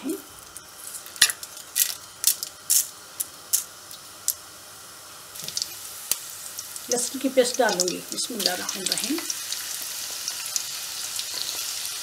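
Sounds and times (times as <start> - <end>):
spices spluttering in hot oil: 5.2 - 12.0.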